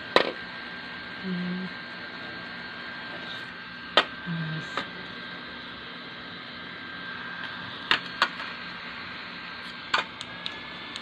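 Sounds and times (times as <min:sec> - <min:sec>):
small fan motor whine: 0:00.0 - 0:11.0
plastic clicks of fan: 0:09.9 - 0:11.0.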